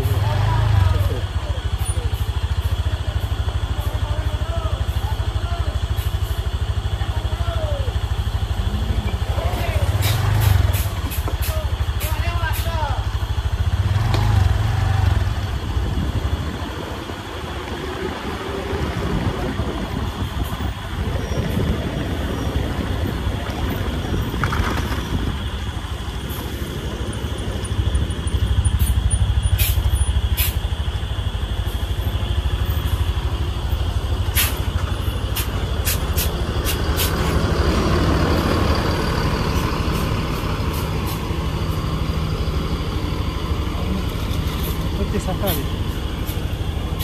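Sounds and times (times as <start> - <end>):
diesel engine running: 0.0 - 47.0
short sharp hisses: 29.6 - 30.7, 34.3 - 34.7.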